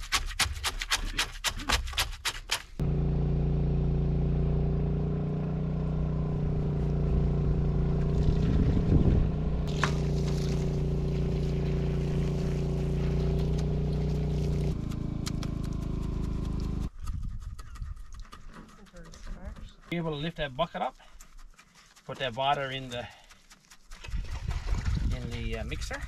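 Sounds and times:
board scraping wet concrete: 0:00.0 - 0:02.8, 0:08.0 - 0:26.0
motor running steadily: 0:02.8 - 0:16.9.

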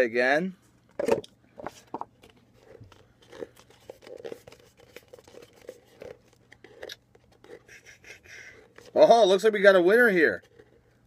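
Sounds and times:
paper cup crinkling and tearing: 0:01.7 - 0:09.2, 0:10.1 - 0:11.0.

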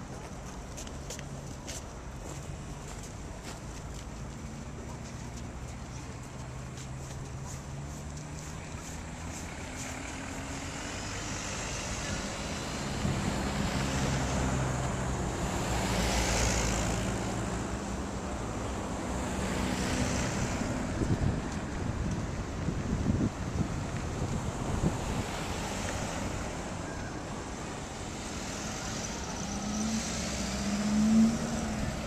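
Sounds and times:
low traffic hum: 0:00.0 - 0:32.0
car driving past: 0:07.3 - 0:21.6, 0:24.9 - 0:32.0.

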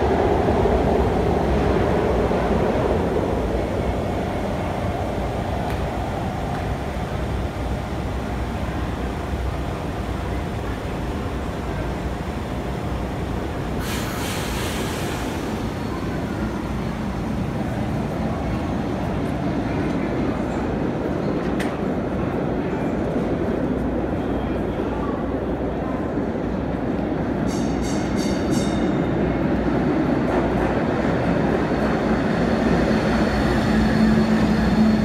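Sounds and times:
sharp air hiss: 0:13.8 - 0:15.6.

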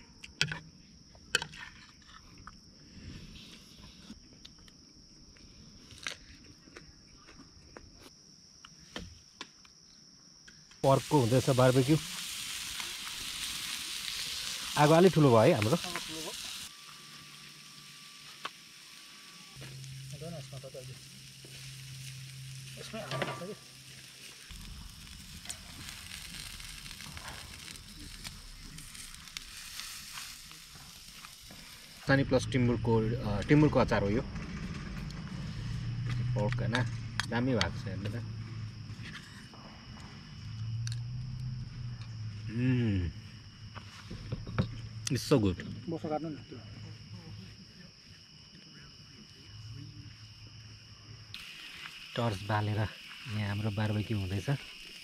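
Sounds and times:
insects trilling: 0:00.0 - 0:55.0
meat sizzling on a grill: 0:10.8 - 0:34.1, 0:51.3 - 0:55.0.

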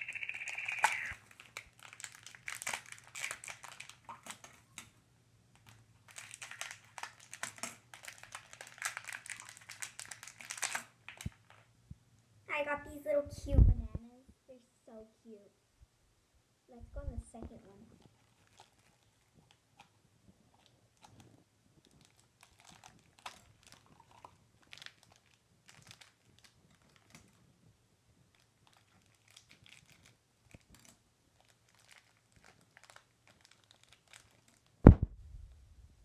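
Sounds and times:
plastic wrapper crinkling and tearing: 0:00.0 - 0:04.6, 0:05.5 - 0:11.7, 0:18.0 - 0:27.4, 0:28.3 - 0:34.8
sharp loud knock: 0:34.9 - 0:35.1.

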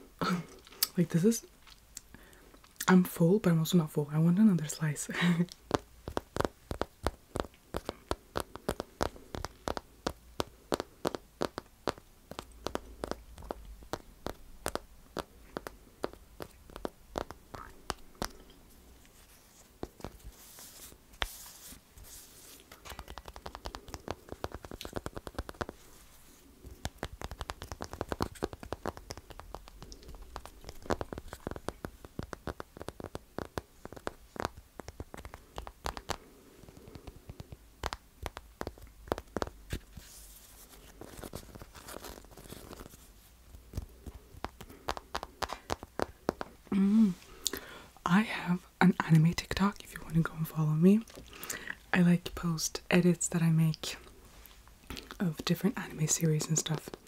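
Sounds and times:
cake being chewed: 0:12.3 - 0:19.2, 0:22.5 - 0:37.7.

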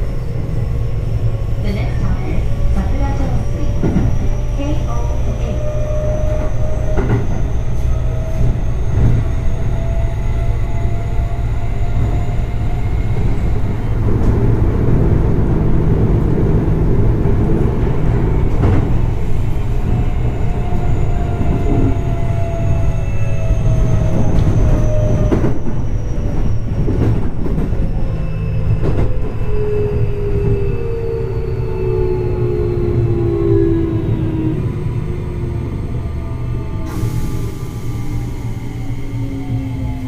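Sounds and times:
deep train running rumble: 0:00.0 - 0:40.0.

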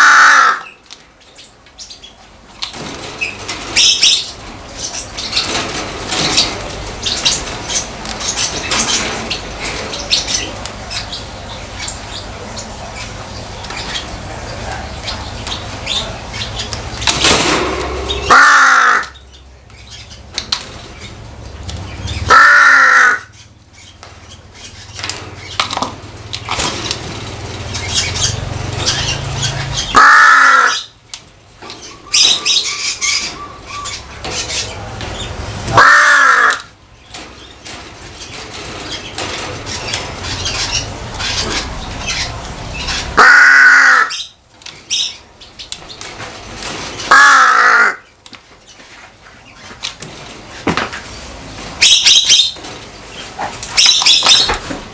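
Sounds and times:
crow cawing: 0:00.0 - 0:00.7, 0:18.0 - 0:19.2, 0:22.3 - 0:23.3, 0:29.9 - 0:30.9, 0:35.8 - 0:36.7, 0:43.2 - 0:44.3, 0:47.1 - 0:48.0.

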